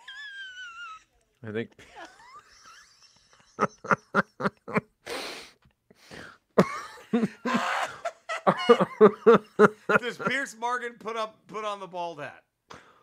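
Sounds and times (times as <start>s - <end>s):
men laughing: 1.8s - 5.0s, 6.6s - 10.6s
wheezing breath: 5.0s - 6.5s.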